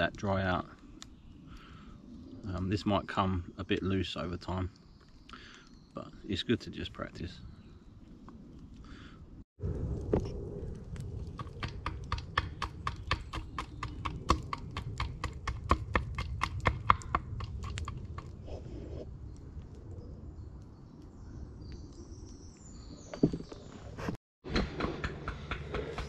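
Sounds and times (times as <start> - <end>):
blade chopping wood: 11.4 - 18.0.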